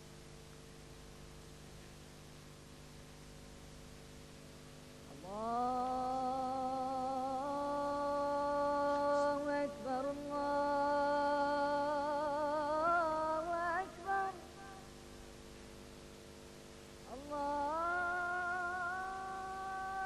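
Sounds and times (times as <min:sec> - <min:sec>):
person humming: 0:17.1 - 0:20.0.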